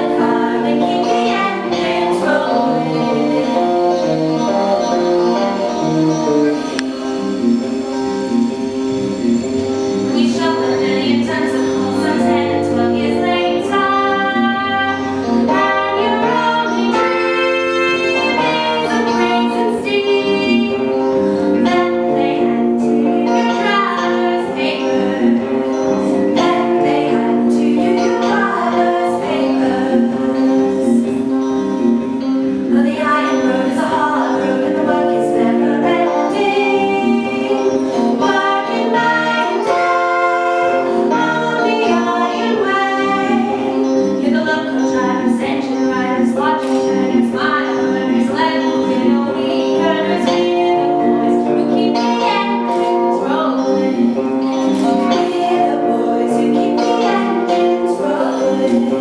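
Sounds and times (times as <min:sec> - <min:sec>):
choir singing long notes: 0:00.0 - 0:59.0.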